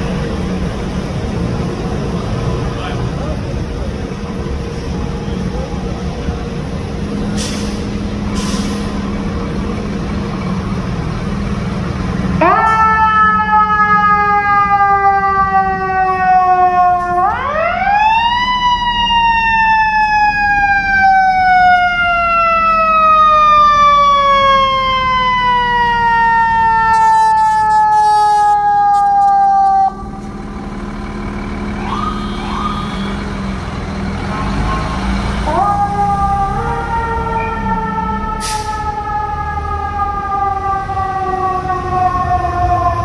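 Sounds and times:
fire truck siren wailing: 0:00.0 - 0:43.0
truck engine rumble: 0:00.0 - 0:43.0
siren chirps: 0:12.4 - 0:30.9, 0:31.7 - 0:33.5, 0:34.4 - 0:43.0.

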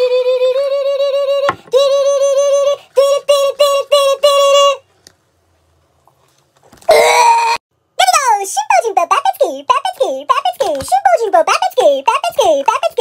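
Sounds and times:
synthetic high-pitched singing voice: 0:00.0 - 0:04.8, 0:08.0 - 0:13.0.

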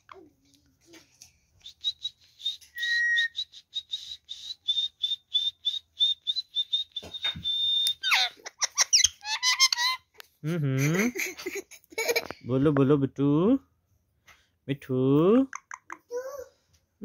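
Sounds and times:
parakeet whistling and chirping: 0:01.8 - 0:10.0.

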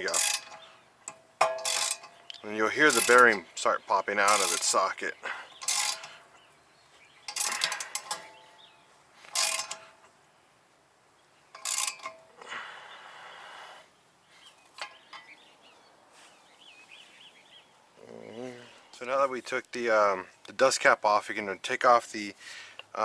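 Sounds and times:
metallic clicking and creaking: 0:00.0 - 0:06.4, 0:07.2 - 0:10.2, 0:11.5 - 0:12.4, 0:14.6 - 0:15.4.

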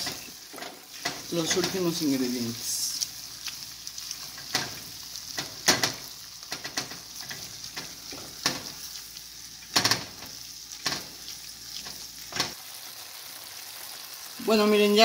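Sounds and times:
meat sizzling in a pot: 0:00.0 - 0:15.0.

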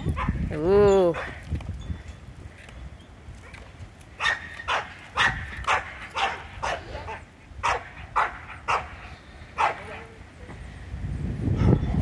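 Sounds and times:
dog barking: 0:04.2 - 0:09.0, 0:09.6 - 0:10.1.

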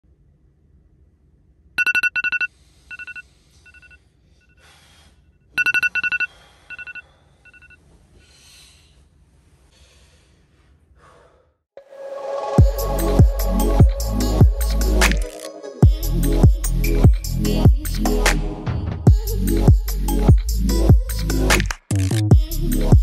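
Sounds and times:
alarm beeping: 0:01.8 - 0:04.0, 0:05.6 - 0:07.8.

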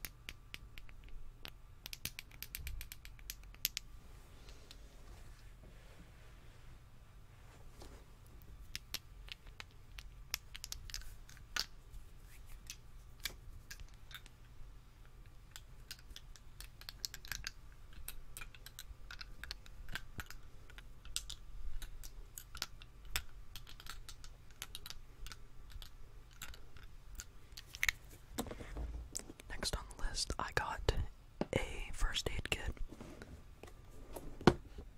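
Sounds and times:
hands rubbing together: 0:11.9 - 0:12.8.

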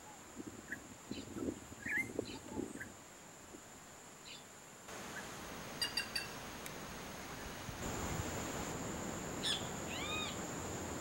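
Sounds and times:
high insect whine: 0:00.2 - 0:11.0
bird chirps: 0:05.8 - 0:06.4, 0:09.4 - 0:10.4.

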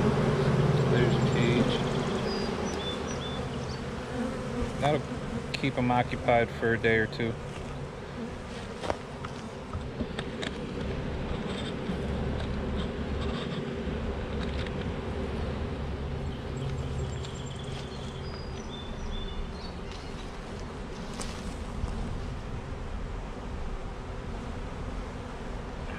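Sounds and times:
honeybees buzzing: 0:00.0 - 0:25.9.

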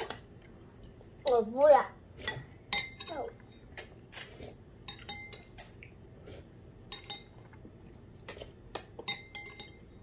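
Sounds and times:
cutlery clinking on ceramic bowls: 0:02.2 - 0:03.8, 0:04.8 - 0:05.7, 0:06.9 - 0:07.5, 0:08.9 - 0:10.0.

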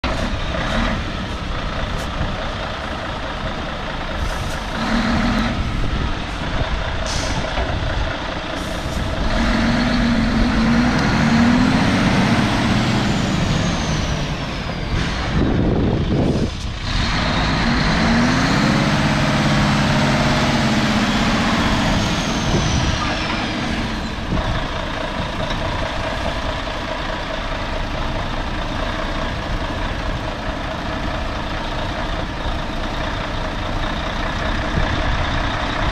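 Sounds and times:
diesel truck engine revving: 0:00.0 - 0:35.9
air brake hiss: 0:07.0 - 0:07.5.

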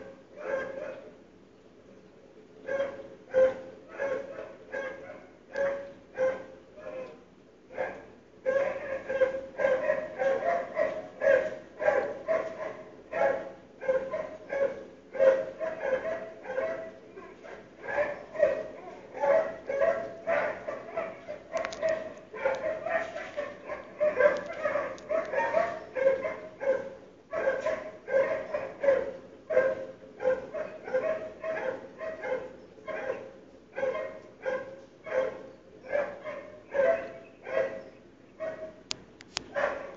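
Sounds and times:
dog barking: 0:00.0 - 0:01.1, 0:02.6 - 0:38.8, 0:39.5 - 0:39.9.

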